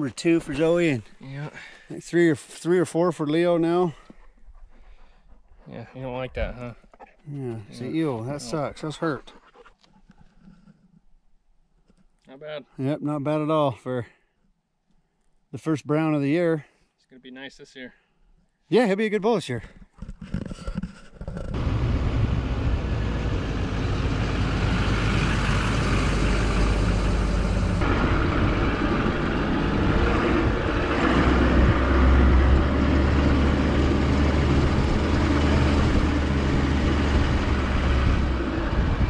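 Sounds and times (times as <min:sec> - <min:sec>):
truck engine running: 0:21.5 - 0:39.0
tyre and wind noise: 0:34.6 - 0:39.0.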